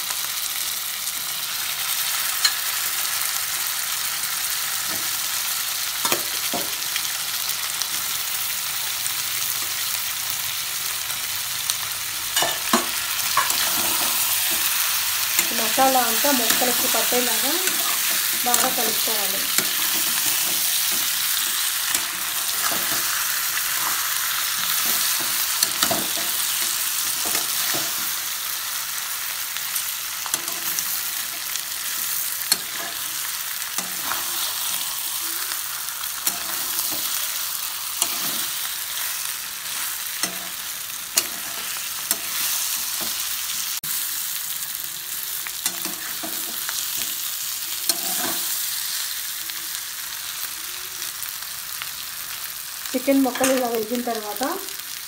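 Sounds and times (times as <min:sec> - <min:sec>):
chicken sizzling in oil: 0:00.0 - 0:55.0
spatula scraping pan: 0:12.4 - 0:28.4, 0:29.6 - 0:43.7.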